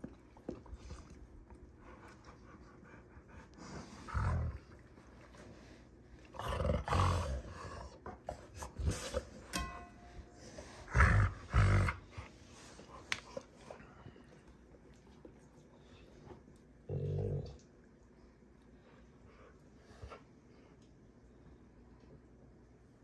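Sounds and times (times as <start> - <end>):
dogs growling: 3.6 - 4.9, 6.3 - 9.3, 10.8 - 12.3, 16.8 - 17.6.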